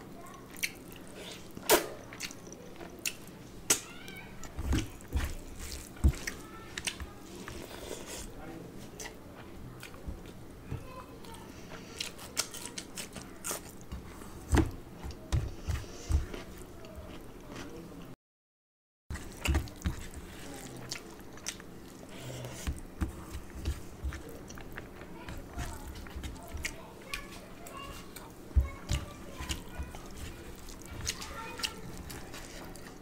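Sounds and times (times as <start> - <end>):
person chewing food: 0.3 - 3.8, 4.4 - 8.4, 11.6 - 18.1, 19.1 - 33.0
fingers mixing rice on steel plate: 22.6 - 33.0.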